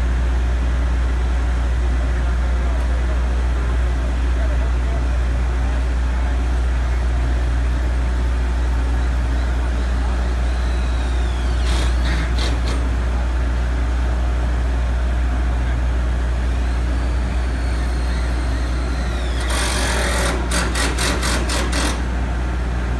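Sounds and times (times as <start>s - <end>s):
heavy machinery engine humming: 0.0s - 22.9s
hissing bursts: 9.8s - 12.9s, 16.4s - 22.0s.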